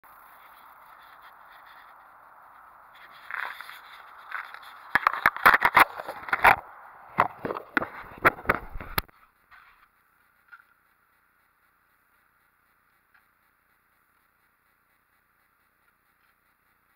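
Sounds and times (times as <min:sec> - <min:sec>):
faint steady hiss: 0:00.0 - 0:16.9
handling clicks and scrapes: 0:02.9 - 0:09.9.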